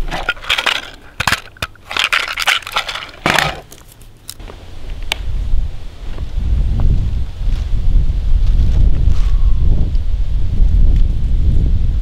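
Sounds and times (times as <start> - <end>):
cartridges rattling in plastic box: 0.0 - 3.8
wind noise on microphone: 4.4 - 12.0.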